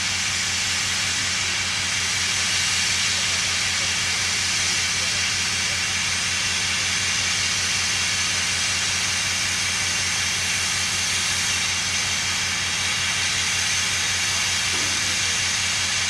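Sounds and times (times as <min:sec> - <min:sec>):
loud hiss of steam: 0:00.0 - 0:16.0.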